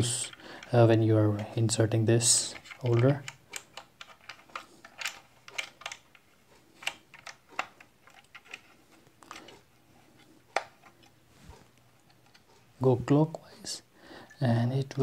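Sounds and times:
metal parts clicking and tapping: 0.0 - 9.6.

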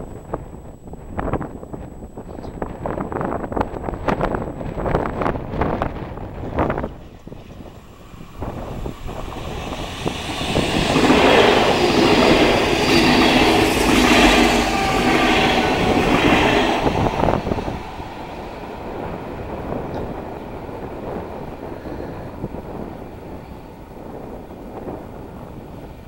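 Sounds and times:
electric train passing at speed: 0.0 - 26.0.

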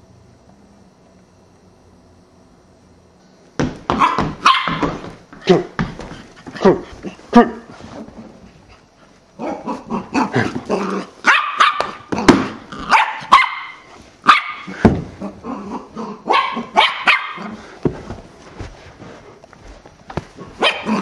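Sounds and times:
puppy barking: 4.0 - 5.0, 11.2 - 12.1, 12.8 - 14.8, 16.2 - 17.6, 20.6 - 21.0.

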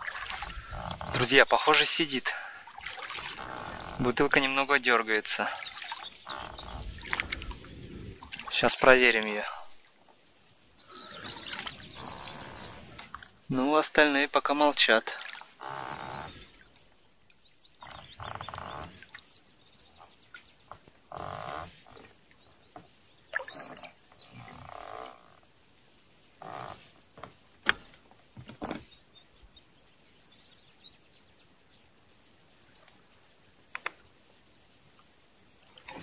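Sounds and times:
oar strokes through water: 0.0 - 10.2, 10.8 - 13.5, 14.8 - 17.0, 17.8 - 25.4, 34.9 - 36.0.

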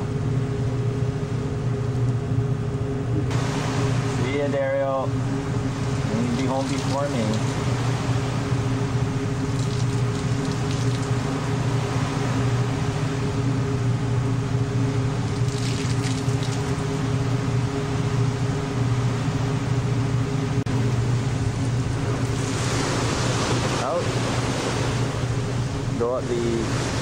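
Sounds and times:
ship engine droning: 0.0 - 27.0
water wash: 3.2 - 27.0.

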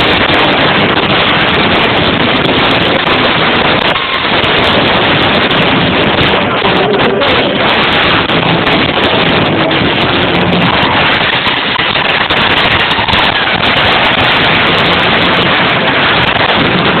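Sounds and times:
distorted live rock band: 0.0 - 17.0.

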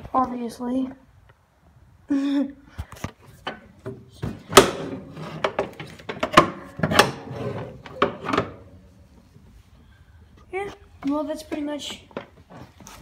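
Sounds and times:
sharp clunks and rattles: 3.4 - 8.8.

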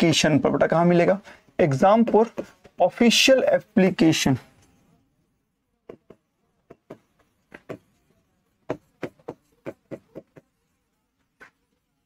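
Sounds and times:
pen tapping on whiteboard screen: 1.9 - 2.8, 5.8 - 8.0, 8.6 - 10.6.

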